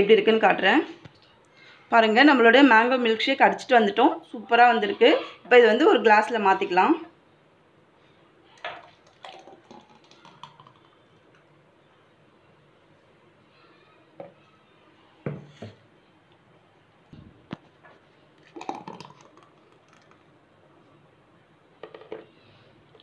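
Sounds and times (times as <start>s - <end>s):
glassware knocking on countertop: 15.2s - 15.7s.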